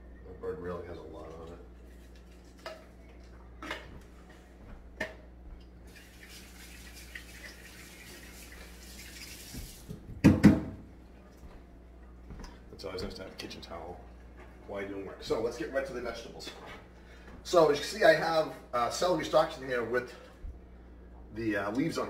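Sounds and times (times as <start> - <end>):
tap running into sink: 9.0 - 10.8
knocks: 10.2 - 10.8.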